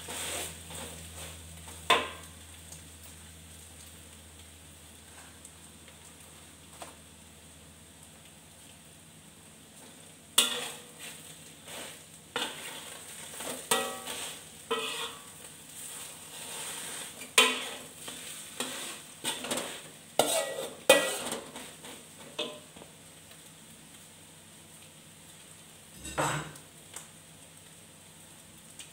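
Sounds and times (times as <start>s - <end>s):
metal spatula scraping wok: 0.0s - 2.2s, 10.4s - 22.7s, 26.0s - 26.5s
food sizzling in oil: 0.0s - 28.9s.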